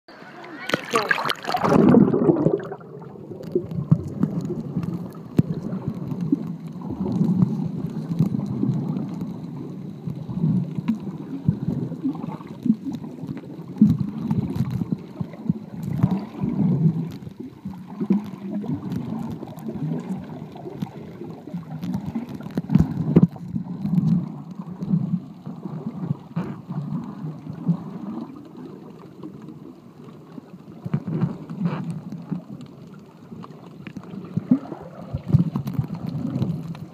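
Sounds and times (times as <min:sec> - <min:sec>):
underwater churning rumble: 0:00.2 - 0:36.9.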